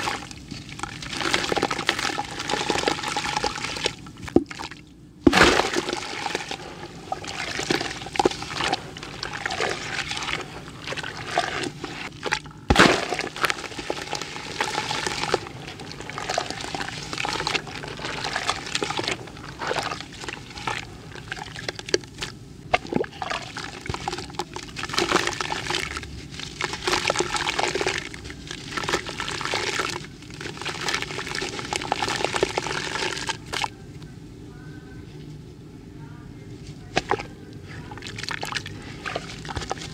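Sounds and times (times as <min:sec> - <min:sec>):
water sloshing and splashing: 0:00.0 - 0:33.7, 0:36.9 - 0:39.9
grains pouring into water: 0:12.7 - 0:21.6.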